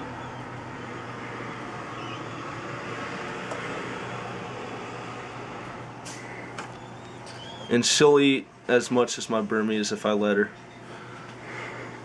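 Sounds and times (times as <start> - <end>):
low hum: 0.0 - 8.7.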